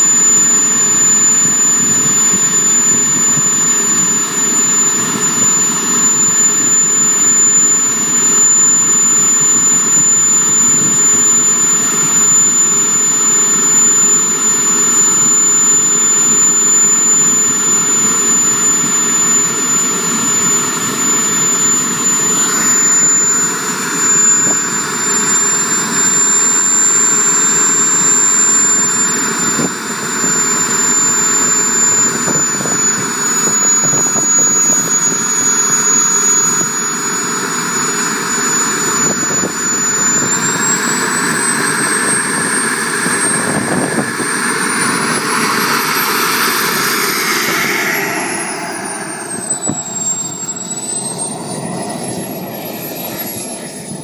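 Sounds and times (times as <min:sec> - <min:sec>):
rushing exhaust noise: 0:00.0 - 0:54.0
turbine high whine: 0:00.0 - 0:54.0.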